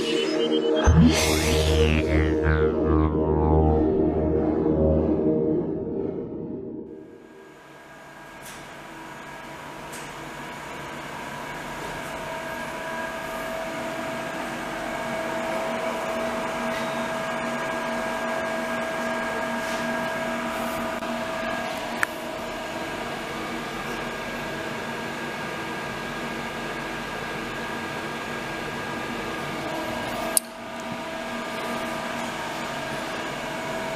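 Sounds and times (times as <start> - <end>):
cooling fans whirring: 0.0 - 7.5.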